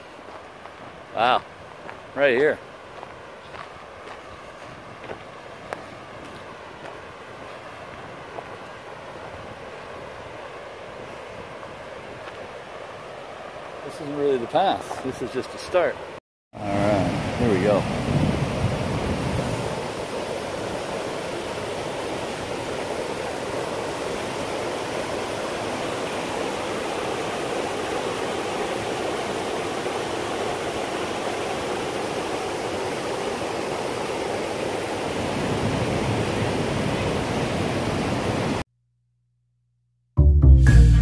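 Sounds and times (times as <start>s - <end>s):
waterfall rushing: 16.6s - 38.6s
music: 40.2s - 41.0s.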